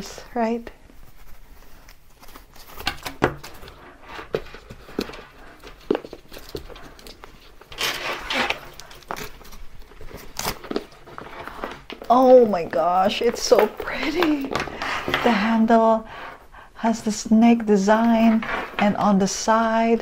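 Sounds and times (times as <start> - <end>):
paper wrapping rustling: 0.9 - 15.4.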